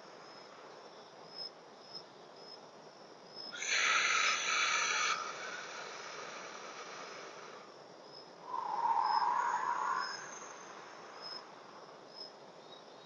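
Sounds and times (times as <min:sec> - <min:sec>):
faint high insect chirp: 0:00.0 - 0:13.0
slow breath rushing: 0:03.6 - 0:12.0.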